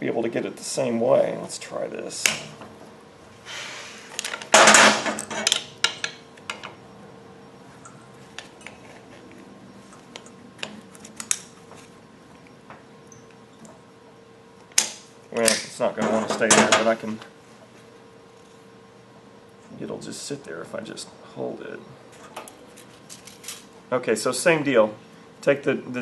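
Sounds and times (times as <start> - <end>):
faint steady hum: 0.0 - 26.0
metal tools clinking and scraping: 4.2 - 6.7, 22.2 - 23.7
tools clattering: 4.2 - 6.8, 22.2 - 23.7.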